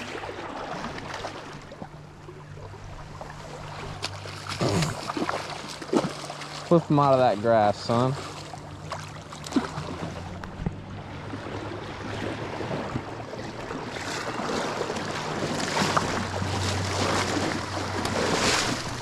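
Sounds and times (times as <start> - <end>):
steady low hum: 0.0 - 19.0
fish splashing in water: 3.2 - 6.9, 7.6 - 19.0.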